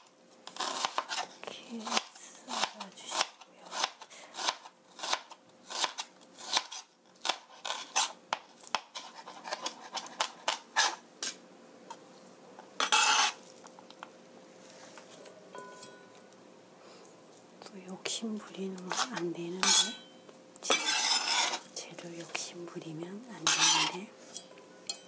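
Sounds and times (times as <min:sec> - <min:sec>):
knife scraping cutting board: 0:00.5 - 0:11.4, 0:12.8 - 0:13.5, 0:18.8 - 0:20.0, 0:20.7 - 0:21.7, 0:23.4 - 0:24.5.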